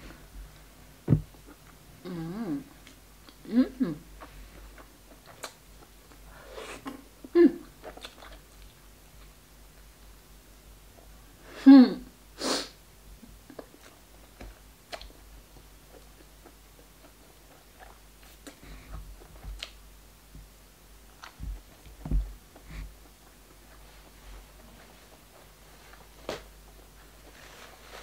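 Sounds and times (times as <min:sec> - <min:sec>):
dull thumps: 0:01.0 - 0:01.4, 0:21.4 - 0:22.4
sharp nasal burst: 0:12.4 - 0:12.8.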